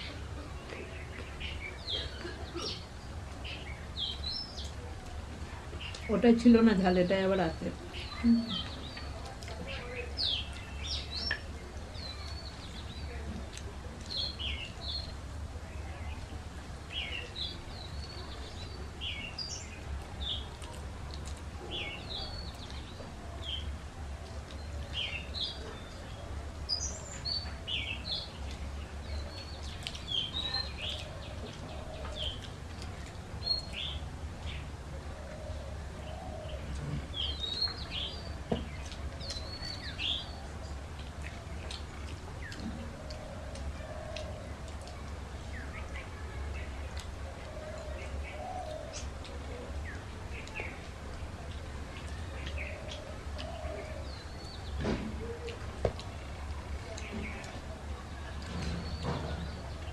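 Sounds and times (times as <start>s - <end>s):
small birds chirping: 0.0s - 59.9s.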